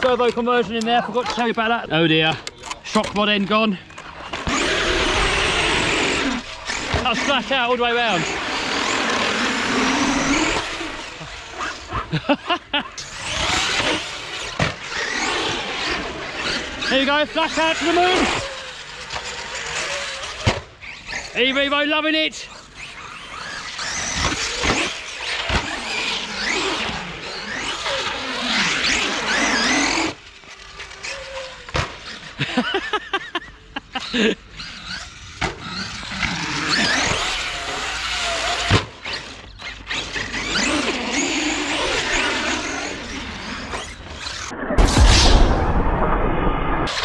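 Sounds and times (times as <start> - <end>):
electric motor whine: 3.9 - 12.3.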